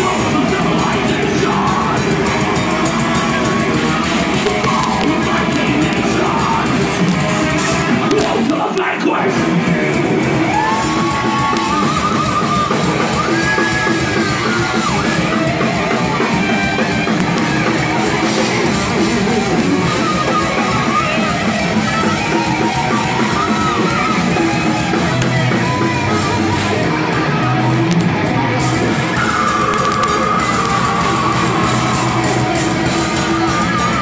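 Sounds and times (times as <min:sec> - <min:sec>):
thrash metal band playing live: 0:00.0 - 0:34.0
pitch-bending high guitar lines: 0:09.3 - 0:34.0.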